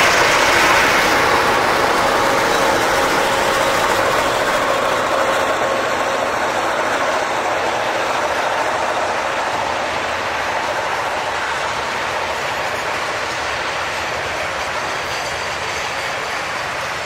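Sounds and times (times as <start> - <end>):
hopper wagons rolling on rails: 0.0 - 17.0
locomotive diesel engines running: 0.0 - 17.0.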